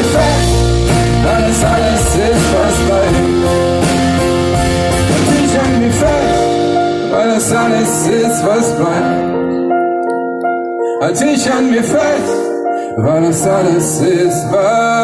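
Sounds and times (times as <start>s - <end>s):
strummed acoustic guitars: 0.0s - 9.3s.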